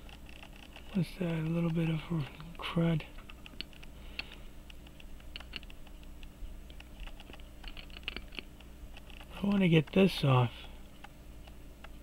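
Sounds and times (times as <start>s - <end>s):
tweezers clicking on watch: 3.2s - 10.0s.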